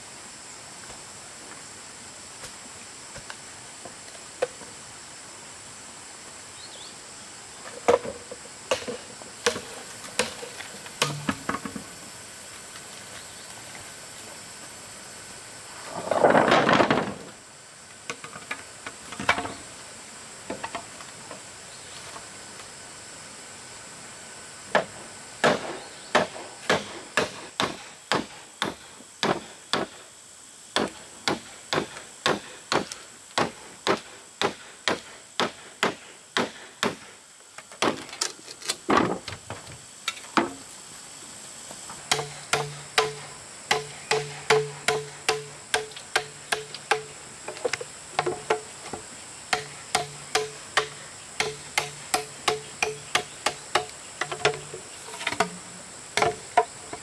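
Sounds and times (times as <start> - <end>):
insects high-pitched tone: 0.0 - 57.0
hammer striking wood: 11.0 - 11.7, 42.1 - 47.1, 49.5 - 54.7.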